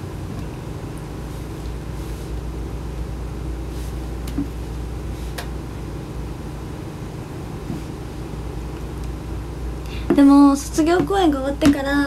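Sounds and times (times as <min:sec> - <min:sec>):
low hum and hiss: 0:00.0 - 0:12.0.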